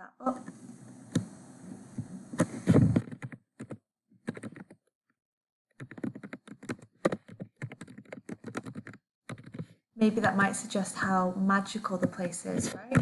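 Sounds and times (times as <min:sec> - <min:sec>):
keyboard typing clicks: 0:03.0 - 0:04.8, 0:05.8 - 0:09.7.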